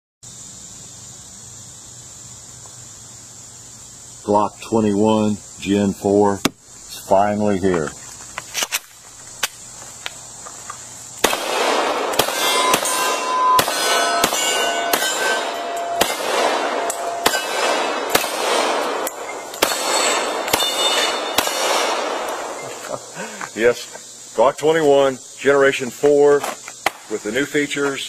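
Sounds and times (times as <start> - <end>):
pistol shots: 11.2 - 22.6
steel targets ringing: 11.5 - 22.8.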